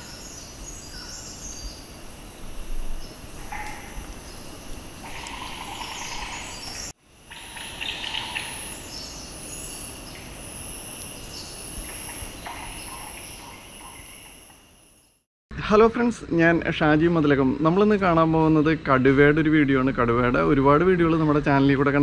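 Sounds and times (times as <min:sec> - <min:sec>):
bird calls and chirps: 0:00.0 - 0:10.4, 0:11.1 - 0:14.5
high-pitched insect drone: 0:01.9 - 0:15.2.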